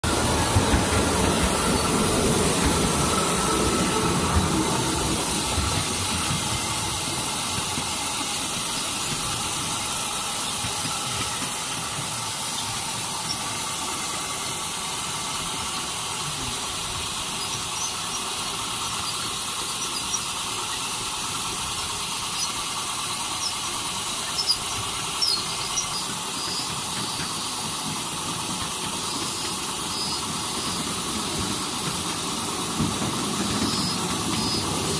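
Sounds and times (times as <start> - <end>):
miniature train wheels rumbling on rails: 0.0 - 34.9.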